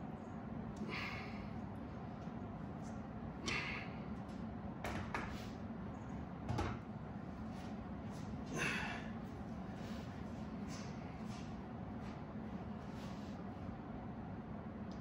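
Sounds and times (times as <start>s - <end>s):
steady low hum: 0.0s - 15.0s
person breathing sharply: 0.8s - 1.6s.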